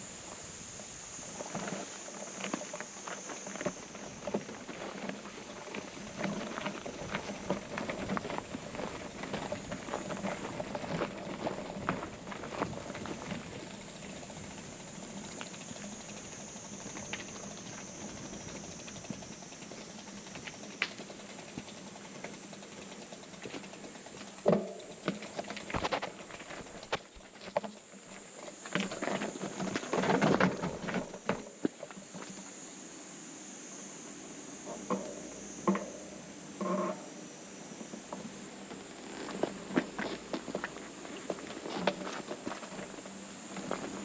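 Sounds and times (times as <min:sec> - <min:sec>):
cicadas droning: 0:00.0 - 0:44.0
footsteps on gravel path: 0:01.7 - 0:14.6, 0:39.1 - 0:43.0.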